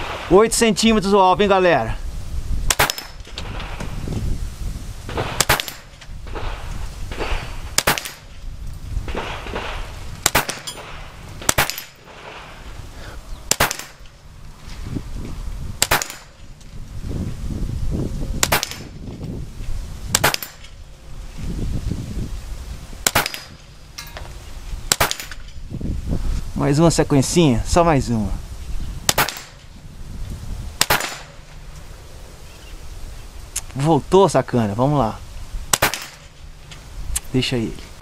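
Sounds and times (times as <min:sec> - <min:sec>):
rifle shots: 0:02.7 - 0:03.8, 0:05.1 - 0:08.3, 0:09.0 - 0:12.6, 0:13.5 - 0:14.1, 0:15.8 - 0:16.4, 0:18.4 - 0:19.0, 0:20.1 - 0:20.7, 0:23.0 - 0:23.6, 0:24.9 - 0:25.4, 0:29.1 - 0:29.6, 0:30.8 - 0:31.4, 0:35.7 - 0:36.3.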